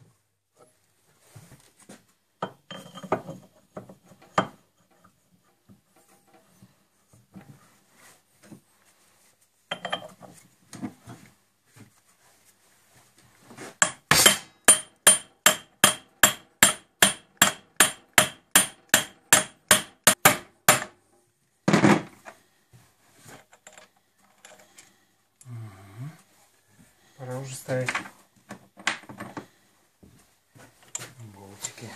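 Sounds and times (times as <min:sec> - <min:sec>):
faint clinks of metal parts: 0:02.4 - 0:05.1, 0:09.7 - 0:10.2, 0:23.4 - 0:24.9
hammer tapping metal parts: 0:13.8 - 0:21.0.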